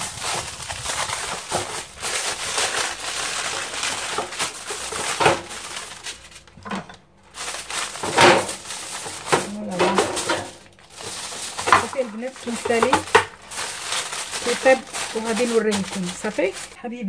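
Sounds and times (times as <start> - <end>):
aluminium foil crinkling: 0.0 - 17.0.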